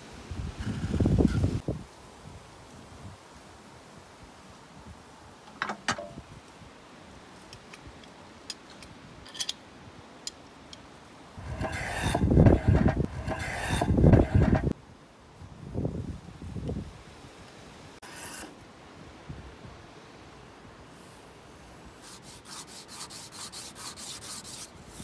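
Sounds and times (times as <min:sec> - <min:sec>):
sanding block on wood: 0:11.4 - 0:14.7, 0:22.0 - 0:25.0.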